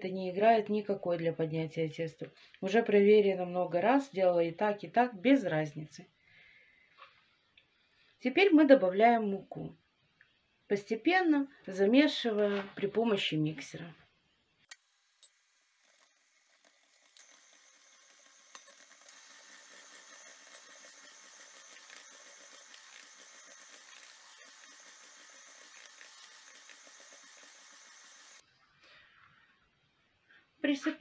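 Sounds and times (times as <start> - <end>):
electric hand mixer running: 14.7 - 28.4.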